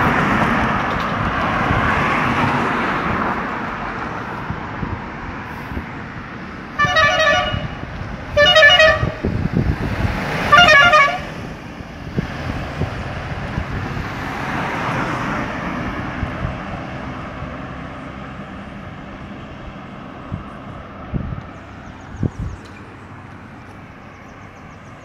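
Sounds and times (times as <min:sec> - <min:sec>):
road vehicle passing: 0:00.0 - 0:25.0
vehicle horn tooting: 0:06.8 - 0:07.8, 0:08.4 - 0:09.2, 0:10.5 - 0:11.3.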